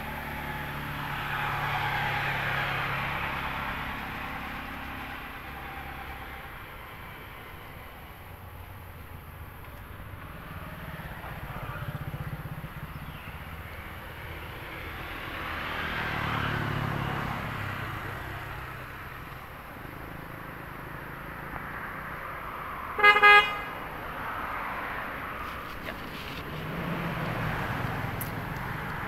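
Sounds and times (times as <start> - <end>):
vehicle passing: 0.0 - 29.0
vehicle horn honk: 23.0 - 23.8.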